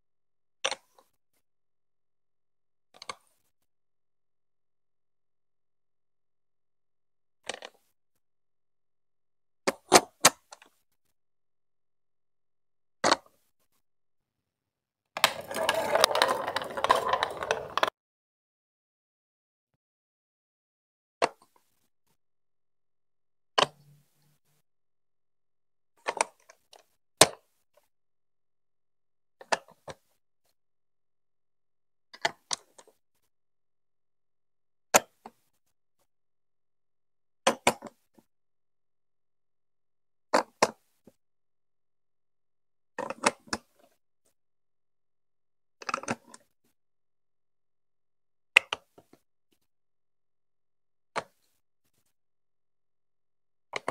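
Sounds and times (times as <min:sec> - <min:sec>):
marble rolling on plastic track: 0:15.2 - 0:17.9
plastic blocks clicking: 0:15.2 - 0:17.9.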